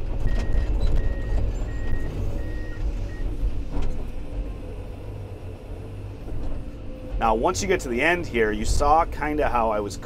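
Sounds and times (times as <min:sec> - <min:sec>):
diesel engine running: 0:00.0 - 0:10.0
reversing alarm beeping: 0:00.3 - 0:03.3.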